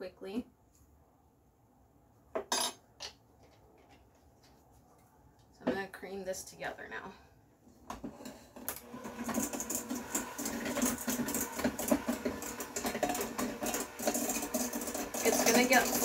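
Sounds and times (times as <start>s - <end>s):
electric hand mixer running: 8.6s - 16.0s.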